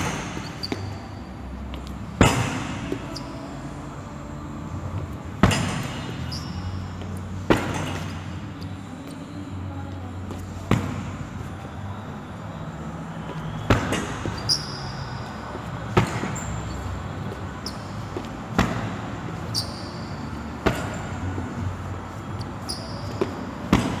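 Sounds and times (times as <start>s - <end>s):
short high squeaks: 0.1s - 1.2s, 14.3s - 15.3s, 19.5s - 20.1s, 22.4s - 23.2s.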